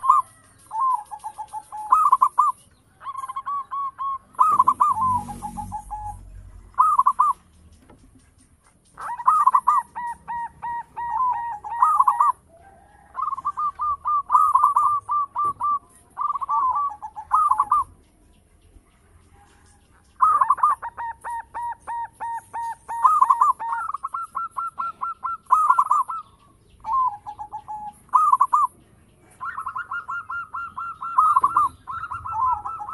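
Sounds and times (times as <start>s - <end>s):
dove cooing: 0.0s - 18.0s, 19.4s - 32.9s.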